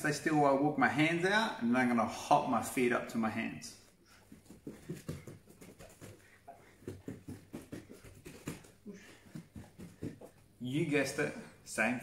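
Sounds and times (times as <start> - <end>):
hands and feet patting a mat: 4.2 - 10.5.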